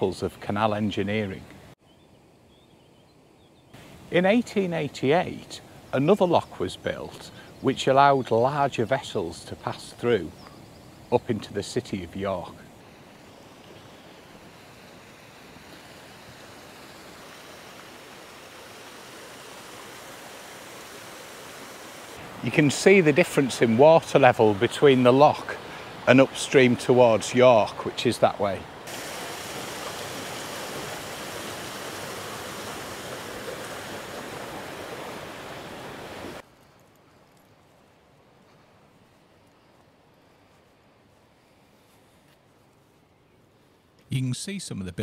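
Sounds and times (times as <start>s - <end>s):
water rushing through lock gates: 15.6s - 36.4s.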